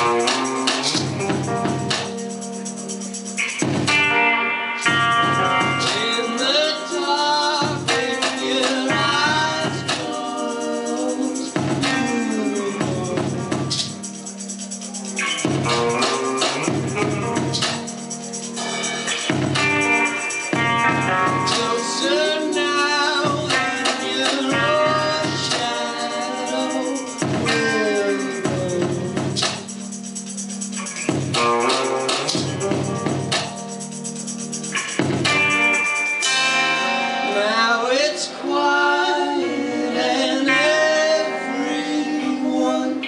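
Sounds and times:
electric guitar: 0:00.0 - 0:43.0
person singing: 0:05.3 - 0:17.9, 0:20.0 - 0:29.8, 0:37.2 - 0:43.0.

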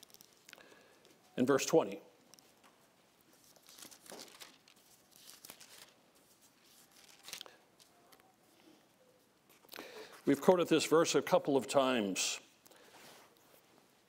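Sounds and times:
paper pages rustling: 0:00.0 - 0:00.5, 0:02.4 - 0:08.3.

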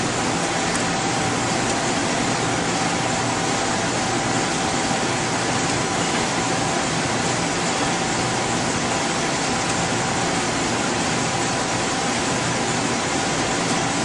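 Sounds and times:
machinery and ventilation hiss: 0:00.0 - 0:14.0.

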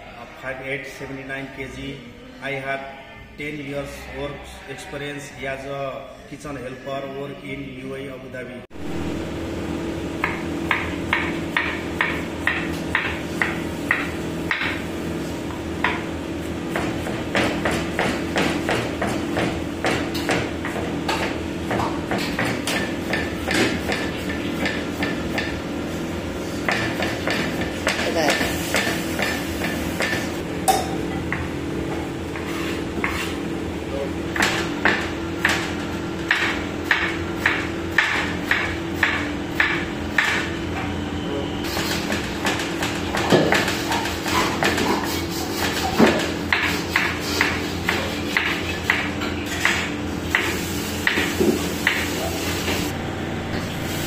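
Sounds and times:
knife chopping on cutting board: 0:16.7 - 0:25.5, 0:26.6 - 0:30.2, 0:32.4 - 0:33.3, 0:42.4 - 0:52.0
steady hum: 0:46.4 - 0:54.0.

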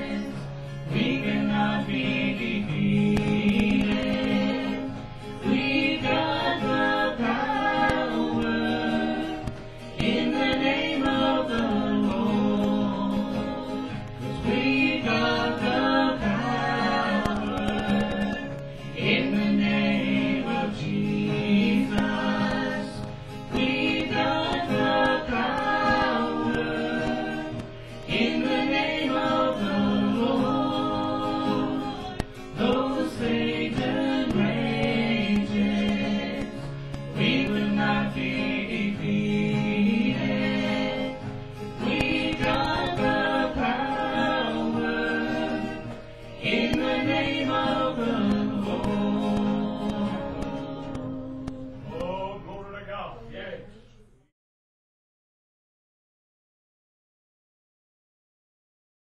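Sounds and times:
singers in harmony: 0:00.0 - 0:52.6
acoustic guitar: 0:00.0 - 0:54.3.

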